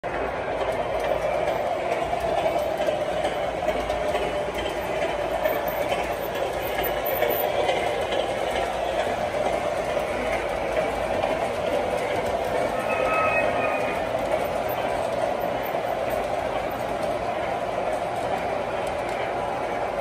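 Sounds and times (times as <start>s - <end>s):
model train wheels rolling on rail: 0.0s - 20.0s.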